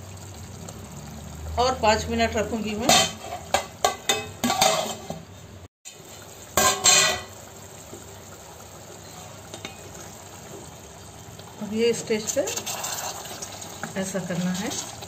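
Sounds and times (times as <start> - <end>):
curry bubbling in pot: 0.0 - 5.1, 5.8 - 15.0
clinks against pot: 2.9 - 5.1.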